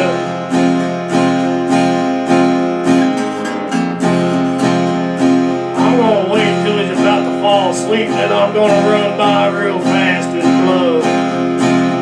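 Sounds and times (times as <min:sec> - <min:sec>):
acoustic guitar strumming: 0:00.0 - 0:12.0
wavering melody line: 0:00.0 - 0:12.0.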